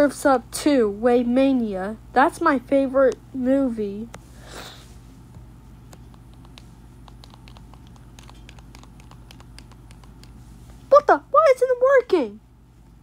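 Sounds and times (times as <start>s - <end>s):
low electrical hum: 0.0s - 13.0s
faint irregular clicks: 5.3s - 10.8s.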